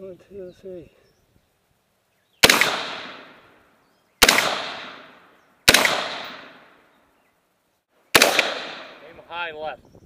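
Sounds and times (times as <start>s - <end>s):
rifle shots echoing: 2.4s - 3.6s, 4.2s - 6.8s, 8.1s - 9.1s.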